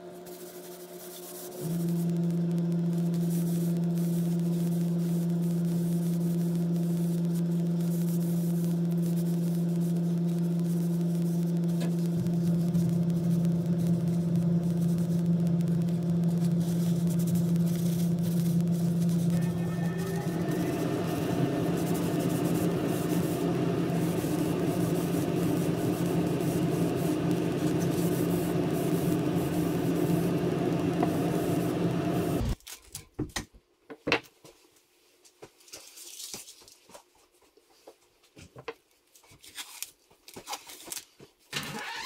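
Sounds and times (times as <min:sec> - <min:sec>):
electric machine hum: 0:00.0 - 0:32.6
paper rustling: 0:16.2 - 0:19.8, 0:39.1 - 0:41.4.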